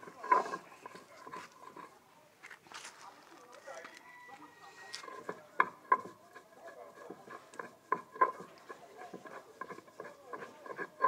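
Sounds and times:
stone scraping on stone: 0.0 - 2.1, 4.4 - 11.0.

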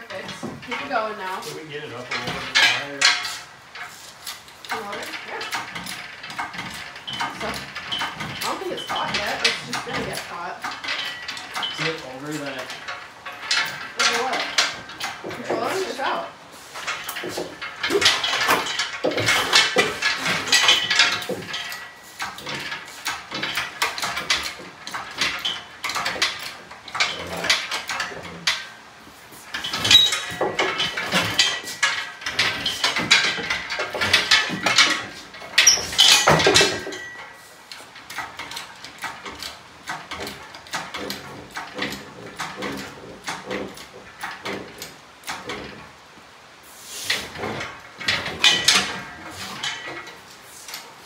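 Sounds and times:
metallic clanking and rattling: 0.0 - 51.0
engine hoist squeaks: 29.6 - 37.5.

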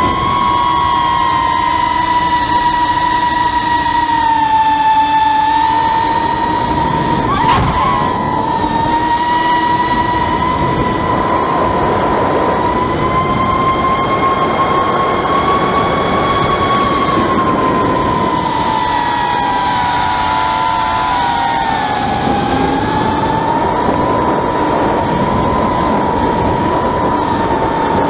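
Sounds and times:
quadcopter motors whining: 0.0 - 28.0
wind noise: 0.0 - 28.0.

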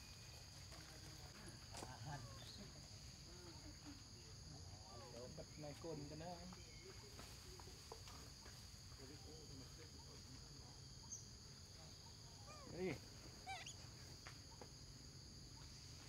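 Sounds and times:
insects droning: 0.0 - 16.0
monkey call falling in pitch: 13.4 - 13.8
short high squeaks: 13.5 - 13.8.

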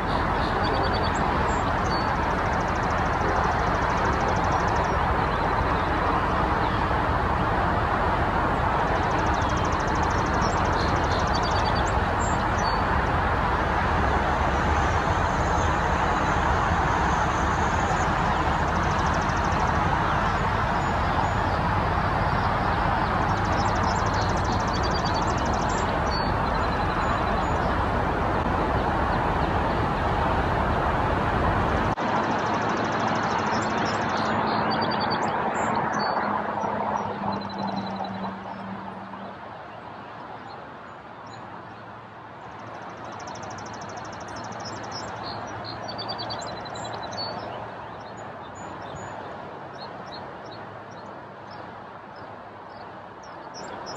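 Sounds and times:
outdoor rumble and hiss: 0.0 - 53.9.

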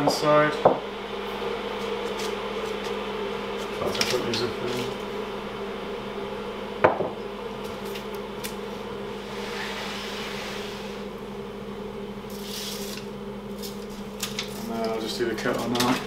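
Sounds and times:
steady low hum: 0.0 - 16.0
glass jug knocking on wood: 6.8 - 7.2.

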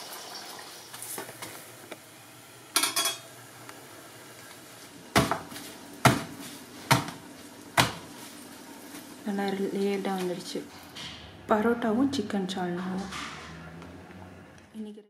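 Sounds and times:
metal kitchenware clattering: 2.8 - 3.3.

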